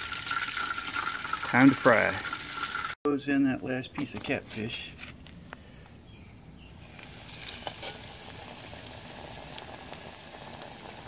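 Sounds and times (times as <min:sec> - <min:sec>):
oil crackling: 0:00.0 - 0:03.0, 0:06.8 - 0:11.0
oil sizzling in a deep fryer: 0:00.0 - 0:03.0, 0:06.8 - 0:11.0.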